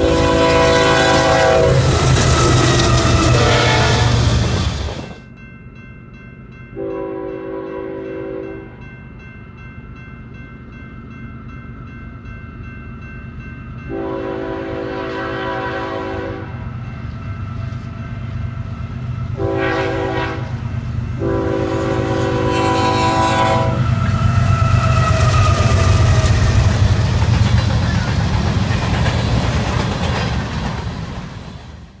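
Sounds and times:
locomotive air horn blasts: 0:00.0 - 0:04.8, 0:06.8 - 0:08.6, 0:13.9 - 0:16.6, 0:19.4 - 0:20.6, 0:21.2 - 0:26.6
freight train rumbling: 0:00.0 - 0:09.0, 0:10.4 - 0:32.0.

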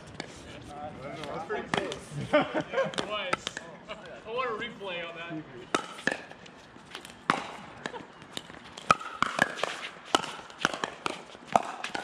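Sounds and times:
ball bouncing on hard court: 0:07.0 - 0:12.0
paddles striking plastic ball: 0:07.0 - 0:12.0.

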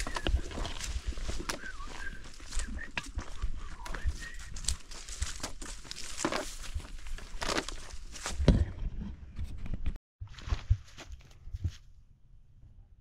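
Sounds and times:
dry leaves crunching underfoot: 0:00.0 - 0:08.4
footsteps on dirt trail: 0:00.0 - 0:08.7, 0:10.2 - 0:11.9.

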